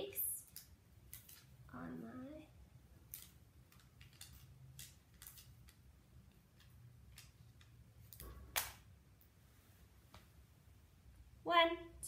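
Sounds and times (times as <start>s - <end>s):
paper stickers peeling: 3.0s - 5.8s.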